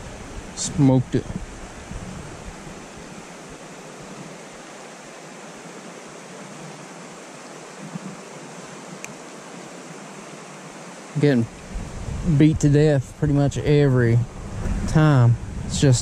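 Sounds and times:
shallow river water flowing: 0.0 - 16.0
faint click: 9.0 - 9.2.

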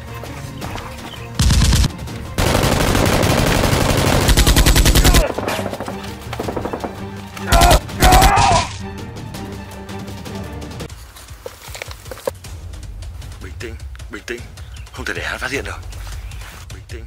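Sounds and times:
automatic gunfire bursts: 1.4 - 7.0.

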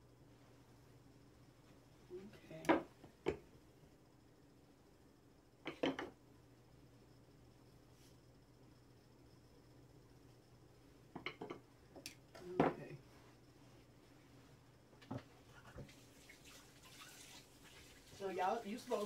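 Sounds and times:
low steady hum: 0.0 - 19.0
broth bubbling in a pot: 15.5 - 19.0.

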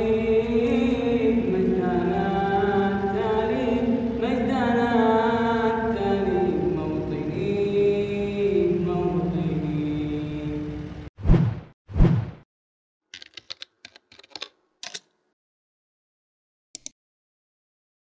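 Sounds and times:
young man chanting: 0.0 - 10.9.

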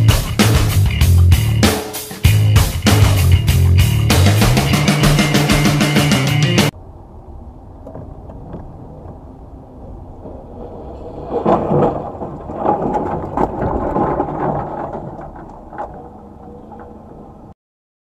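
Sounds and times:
vehicle rumbling on road: 2.4 - 17.6
vehicle collision bangs and crunching: 7.7 - 17.5.

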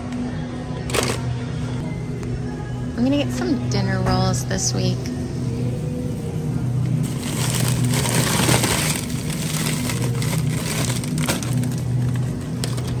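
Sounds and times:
steady low hum: 0.0 - 13.0
plastic bag crinkling: 7.0 - 13.0.

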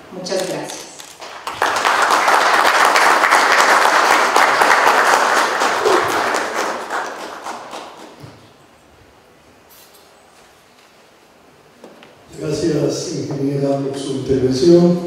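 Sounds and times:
audience applauding: 1.2 - 8.3.

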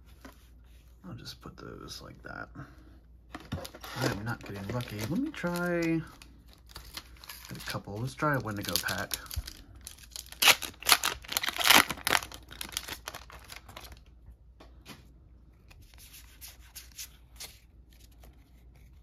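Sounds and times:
foil pack ripping and crinkling: 3.6 - 14.0
cards rustling and sliding: 15.6 - 19.0.

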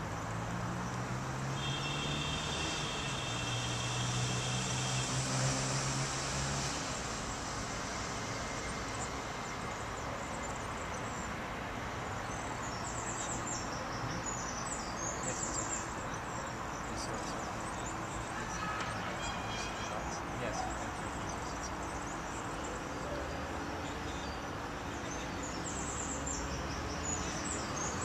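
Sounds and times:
small birds chirping: 9.0 - 28.0.

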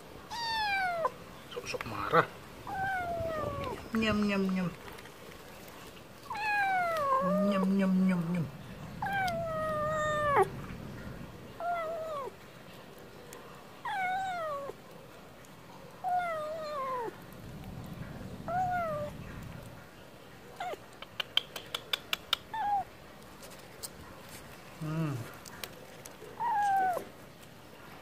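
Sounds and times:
kitten meowing: 0.3 - 1.2, 2.6 - 3.9, 6.3 - 7.7, 9.0 - 10.5, 11.6 - 12.3, 13.9 - 14.8, 16.0 - 17.2, 18.4 - 19.2, 22.5 - 22.9, 26.4 - 27.1.

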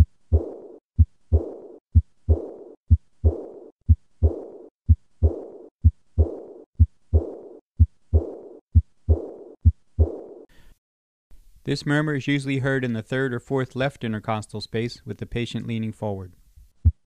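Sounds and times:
heartbeat: 0.0 - 10.5, 16.7 - 17.0
high-pitched blowing heart murmur: 0.0 - 10.5.

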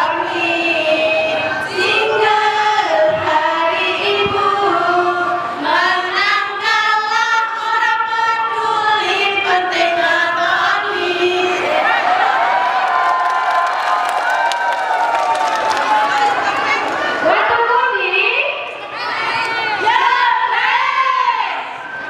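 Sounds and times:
women singing a jingle: 0.0 - 12.3.

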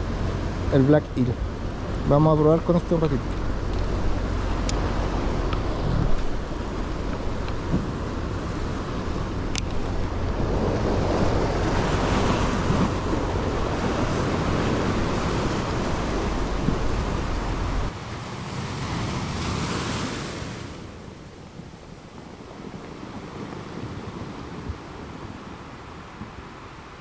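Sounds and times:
wind buffeting microphone: 0.0 - 19.9, 20.5 - 27.0
surf washing against rocks: 0.0 - 27.0.

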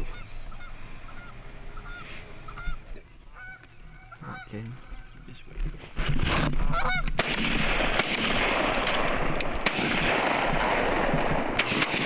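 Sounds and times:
geese honking: 0.0 - 5.4, 6.6 - 7.2.

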